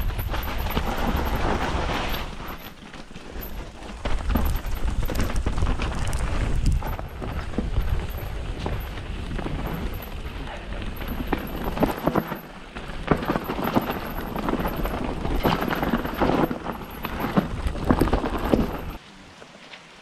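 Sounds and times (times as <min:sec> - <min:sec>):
wind rumble on microphone: 0:00.0 - 0:02.6, 0:03.4 - 0:12.0
bike clattering and knocking: 0:00.0 - 0:19.0
tyres crunching over stones: 0:00.0 - 0:19.0.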